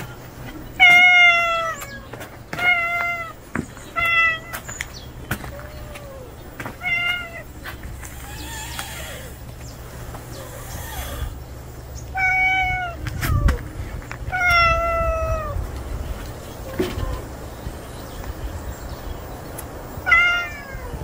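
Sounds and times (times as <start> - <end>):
cat meowing: 0.8 - 3.4, 4.0 - 4.6, 5.5 - 7.5, 8.1 - 9.4, 12.1 - 13.6, 14.3 - 15.6, 20.0 - 21.0.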